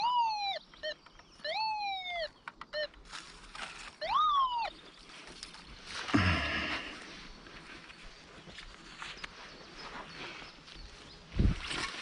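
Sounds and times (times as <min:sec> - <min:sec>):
metal detector tones: 0:00.0 - 0:04.7
rustling of soil and leaves: 0:02.9 - 0:12.0.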